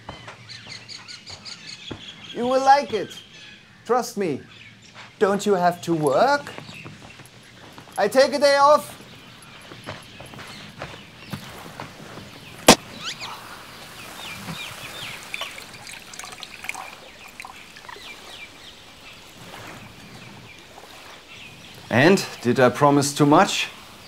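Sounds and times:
wine pouring into glass: 15.0 - 18.2.

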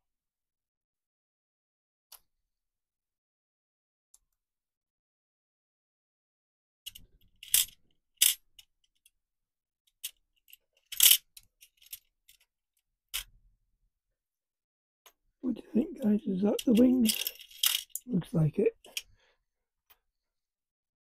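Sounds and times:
metal parts clicking on plastic: 6.9 - 9.1, 9.9 - 12.5, 16.5 - 18.1.

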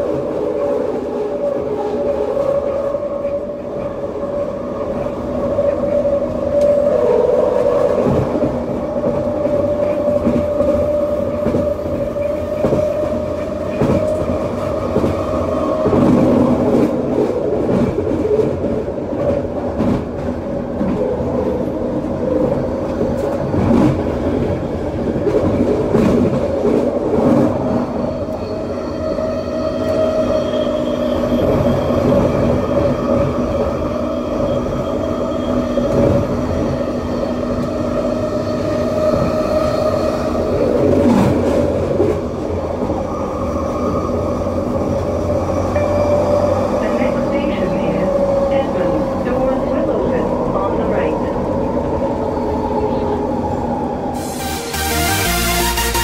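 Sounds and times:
wheels rumbling on rail: 0.0 - 54.6
high-pitched tones: 54.2 - 56.0.

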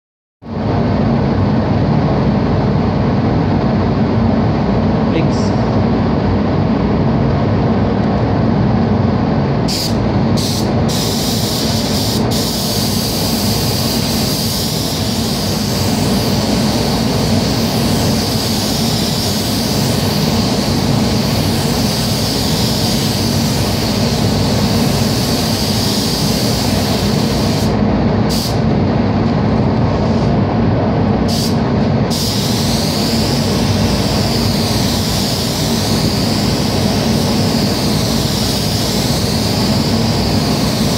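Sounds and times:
spray booth air flow roar: 0.5 - 40.9
paint spray gun hissing: 9.7 - 28.6, 31.3 - 40.9.

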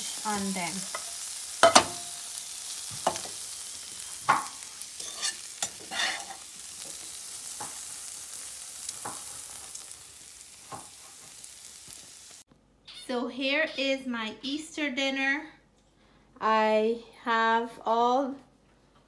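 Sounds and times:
beans sizzling in butter: 0.0 - 12.4.

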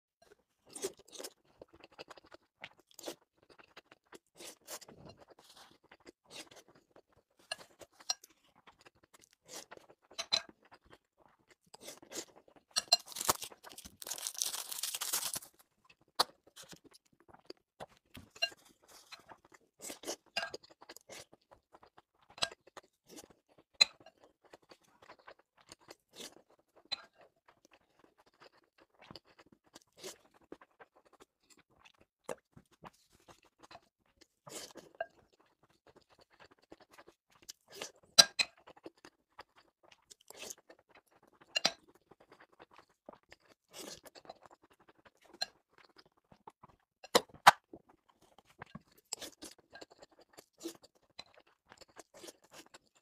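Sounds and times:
person chewing food: 0.2 - 53.0.

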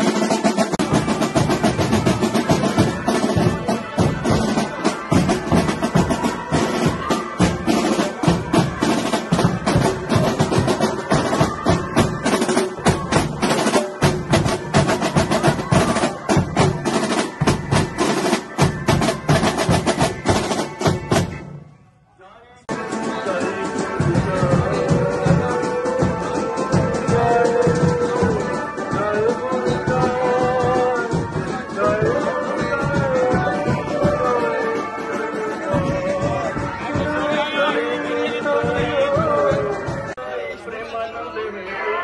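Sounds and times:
marching band drums: 0.0 - 21.8, 22.7 - 40.2.

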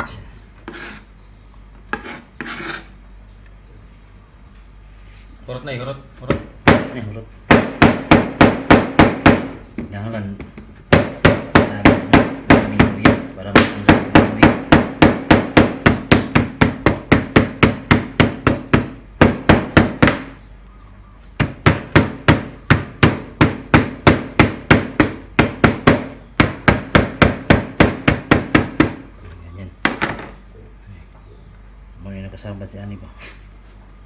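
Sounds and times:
knife pounding on plastic board: 10.9 - 20.3.

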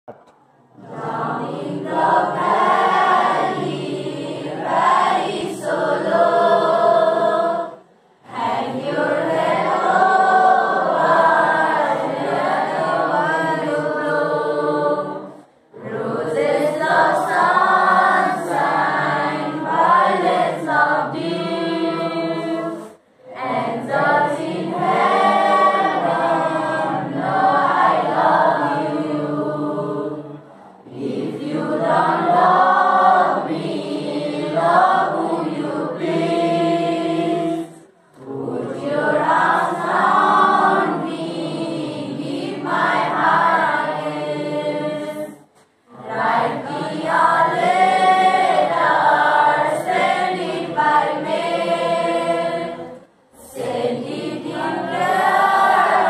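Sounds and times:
group singing without instruments: 0.7 - 56.0.

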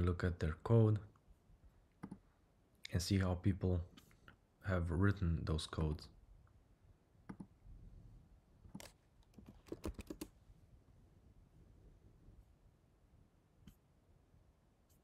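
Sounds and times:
keyboard and mouse clicks: 2.0 - 2.2, 7.3 - 7.6, 8.7 - 10.3.

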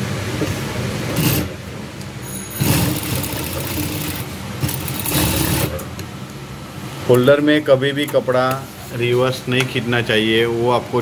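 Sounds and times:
sewing machine running: 1.1 - 1.6, 2.6 - 5.9.

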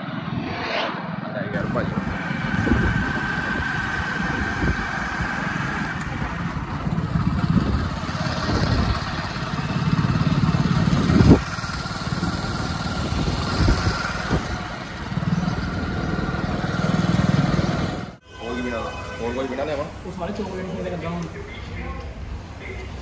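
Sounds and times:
motorcycle engine rumbling: 1.3 - 18.2.

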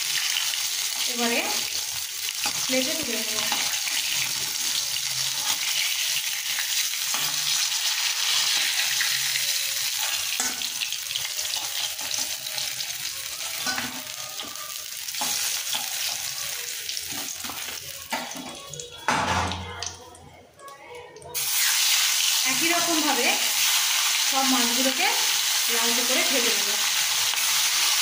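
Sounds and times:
fish sizzling in hot oil: 0.0 - 18.9, 21.3 - 28.0
metal spatula scraping a pan: 2.3 - 12.8, 13.4 - 16.3.

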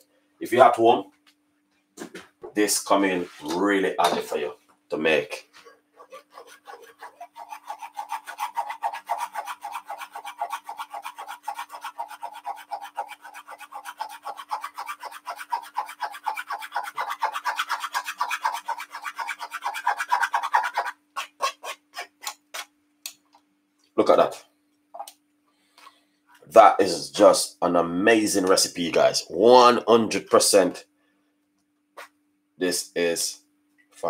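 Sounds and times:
spoon scraping mesh strainer: 5.6 - 22.4.

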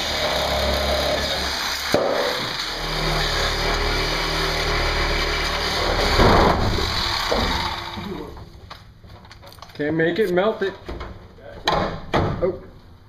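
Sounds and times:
power tool running: 0.0 - 8.4.

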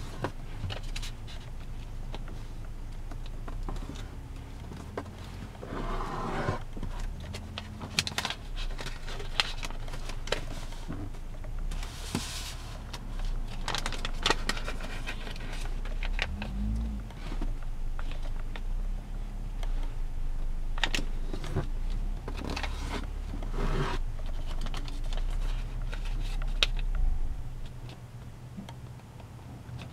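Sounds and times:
paper being folded and creased: 6.3 - 10.9, 11.8 - 16.8, 22.4 - 27.7
paper rustling: 11.8 - 16.4.

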